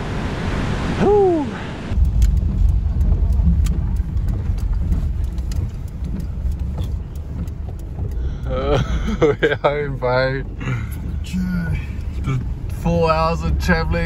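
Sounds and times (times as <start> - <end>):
car engine and tyre rumble: 0.0 - 14.0
man shouting woo: 1.0 - 1.6
wind noise on microphone: 1.9 - 8.2
faint clicks: 2.0 - 12.8.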